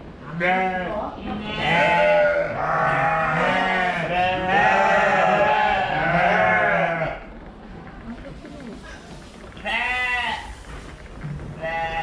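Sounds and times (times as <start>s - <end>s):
sheep bleating: 0.3s - 7.3s.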